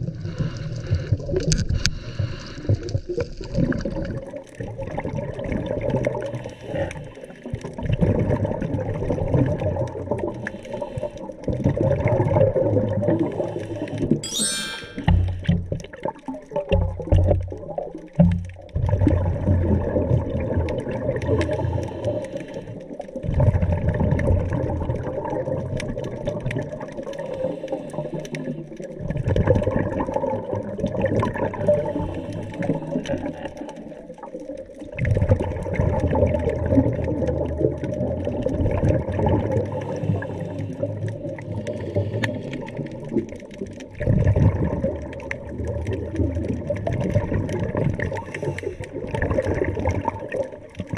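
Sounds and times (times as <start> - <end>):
exhaled bubbles underwater: 0.0 - 50.9
scuba regulator breathing: 1.8 - 2.7, 27.2 - 28.6, 31.7 - 33.8, 39.7 - 42.7, 48.2 - 49.1.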